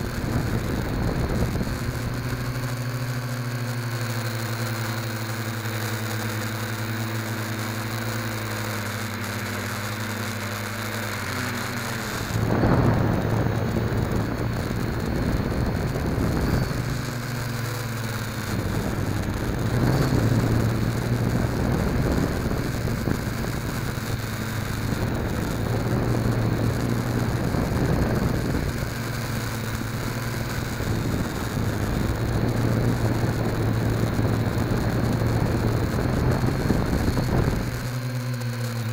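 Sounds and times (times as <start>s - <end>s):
quadcopter motors buzzing: 0.0s - 38.9s
rush of air: 12.2s - 17.3s.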